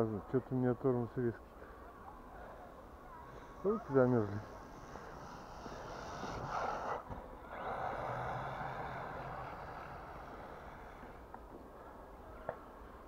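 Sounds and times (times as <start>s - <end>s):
toy truck motor driving on snow: 3.3s - 11.4s.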